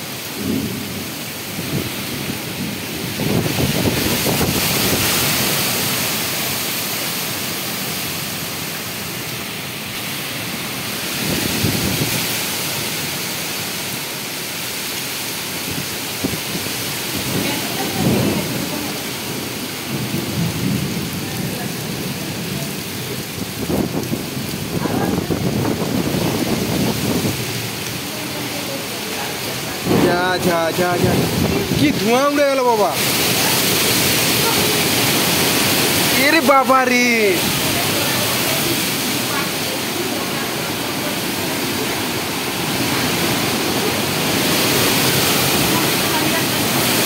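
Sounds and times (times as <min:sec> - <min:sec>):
gusting wind: 0:00.0 - 0:47.0
heavy rain: 0:00.0 - 0:47.0
low thunder rumbles: 0:00.2 - 0:06.4, 0:15.7 - 0:32.3.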